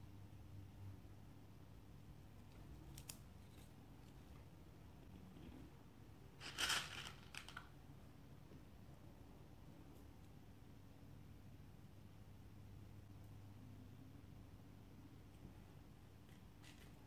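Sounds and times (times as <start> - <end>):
beads rustling clatter: 6.4 - 7.7.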